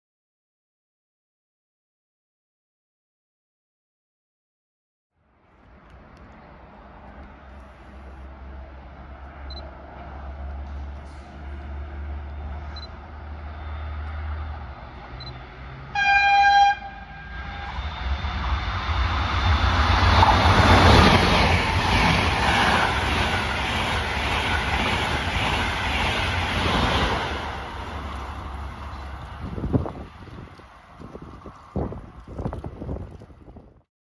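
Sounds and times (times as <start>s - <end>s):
train wheel and rail rushing: 5.7s - 33.6s
train horn toot: 15.9s - 18.0s.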